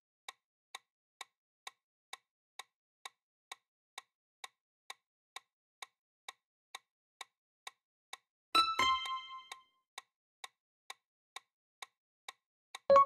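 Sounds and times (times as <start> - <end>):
clock ticking: 8.6 - 9.6, 12.7 - 13.0.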